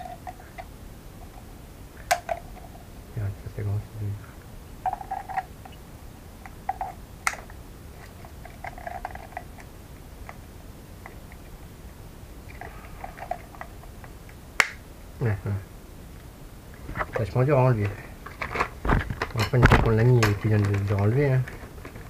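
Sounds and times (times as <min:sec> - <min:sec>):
plastic snap: 0:07.3 - 0:07.6, 0:14.6 - 0:14.8.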